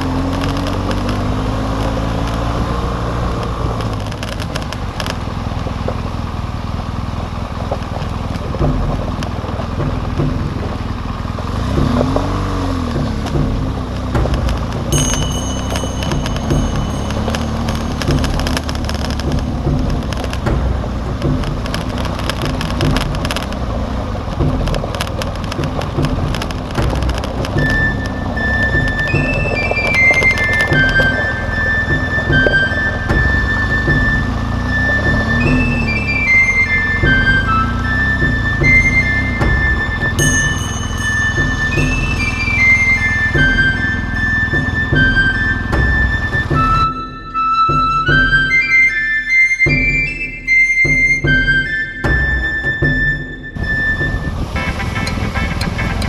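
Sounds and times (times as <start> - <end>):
motorcycle engine running: 0.0 - 47.0, 52.0 - 56.0
gravel clattering under tyres: 0.0 - 56.0
held musical note: 12.6 - 23.6, 25.6 - 56.0
wind noise: 52.0 - 56.0.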